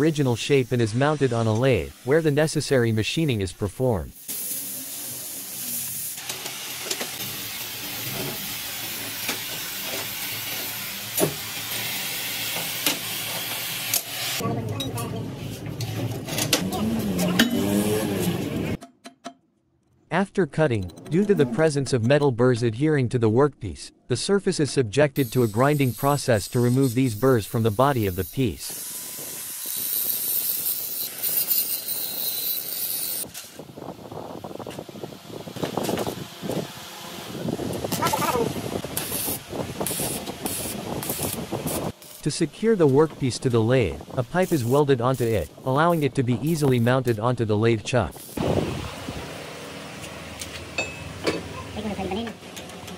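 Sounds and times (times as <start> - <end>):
cutting torch hissing: 4.2 - 14.4, 25.2 - 33.3, 36.5 - 42.3
angle grinder grinding steel: 25.2 - 33.3
tool striking steel plate: 50.8 - 51.4.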